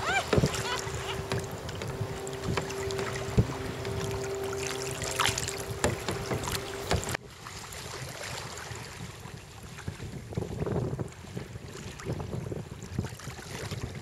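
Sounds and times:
steady hum: 0.0 - 7.2
paddles splashing: 0.0 - 9.1
choppy water: 0.0 - 14.0
wind: 0.0 - 14.0.

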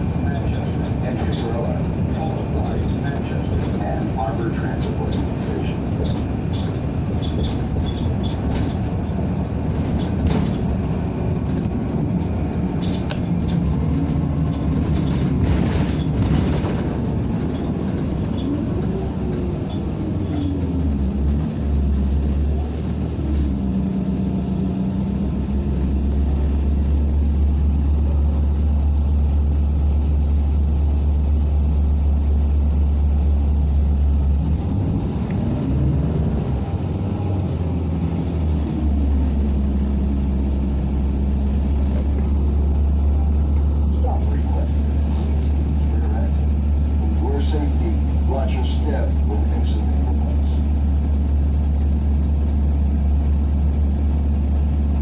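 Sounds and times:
bus engine and road noise: 0.0 - 55.0.

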